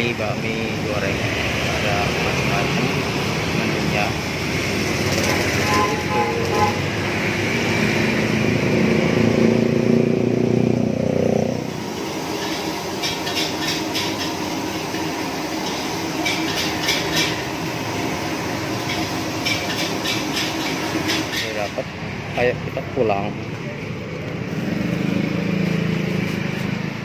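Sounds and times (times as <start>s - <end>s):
street background rumble: 0.0s - 27.0s
vehicle engine running: 0.0s - 27.0s.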